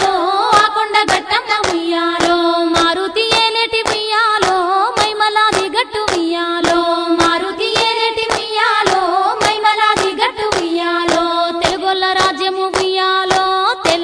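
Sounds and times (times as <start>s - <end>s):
folk song singing: 0.0s - 14.0s
hand claps: 0.0s - 14.0s.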